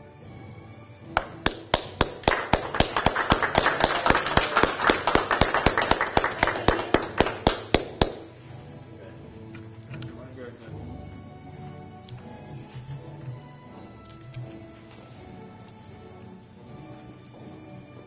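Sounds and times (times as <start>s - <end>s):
loud even hand claps: 1.1s - 8.4s
light clapping from group: 1.1s - 8.5s.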